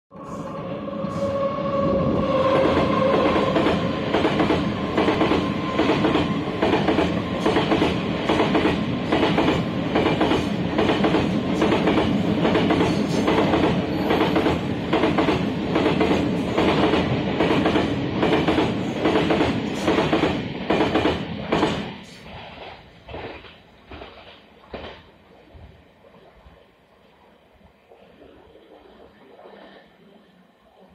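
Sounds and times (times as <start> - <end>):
train wheels clattering over rail joints: 2.6 - 25.1.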